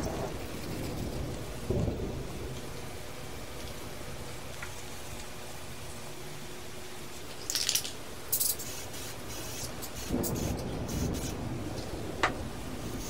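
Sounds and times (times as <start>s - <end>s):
low background hum: 0.0s - 13.0s
spray can hissing: 7.4s - 11.4s.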